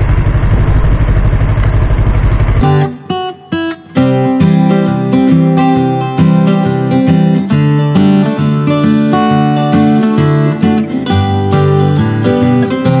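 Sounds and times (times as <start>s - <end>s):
acoustic guitar background music: 2.6s - 13.0s.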